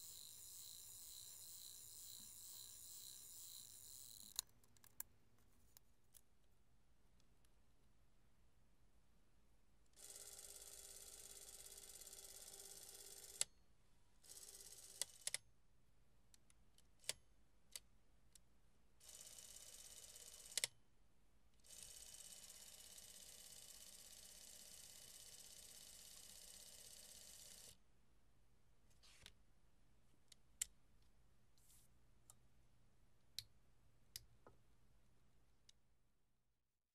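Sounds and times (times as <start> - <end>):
clockwork camera motor whirring: 0.0 - 5.0, 21.7 - 27.8
small clicks: 0.0 - 6.3.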